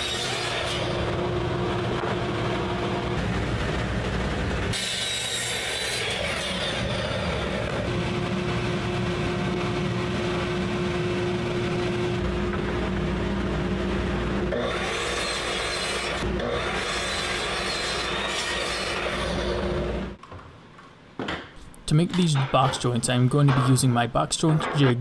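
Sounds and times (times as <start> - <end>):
miter saw cutting wood: 0.0 - 1.3, 4.7 - 8.9, 14.5 - 20.0.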